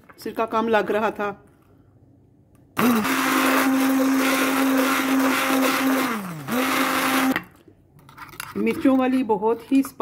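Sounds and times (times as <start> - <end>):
immersion blender motor whine: 2.8 - 7.4.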